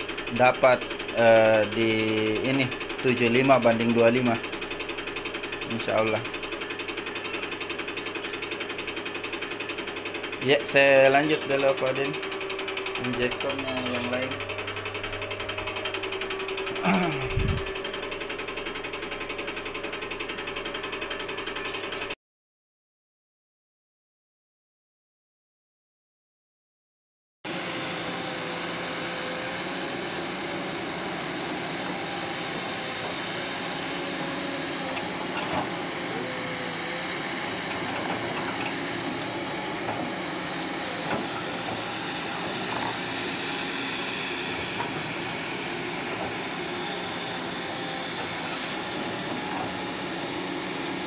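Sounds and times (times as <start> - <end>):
diesel engine running: 0.0 - 21.9.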